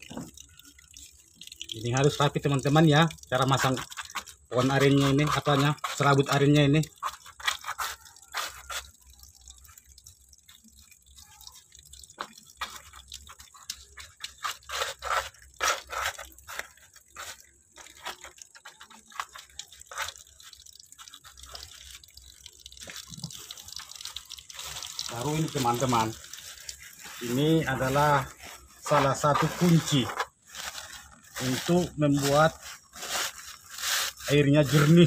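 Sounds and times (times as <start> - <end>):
thin stream of running water: 0.0 - 35.0
wet fibre crackling: 10.6 - 35.0.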